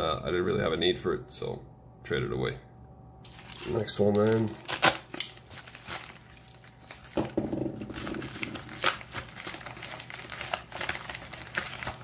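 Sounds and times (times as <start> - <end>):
padded mailer crinkling and rustling: 3.3 - 12.0.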